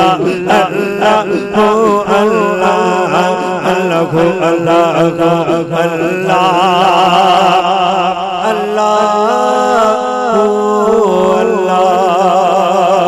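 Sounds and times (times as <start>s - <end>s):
man singing into a microphone: 0.0s - 13.0s.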